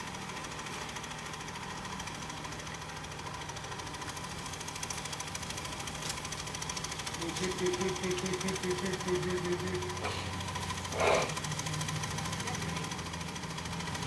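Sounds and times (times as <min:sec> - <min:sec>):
go-kart engine idling: 0:00.0 - 0:14.0.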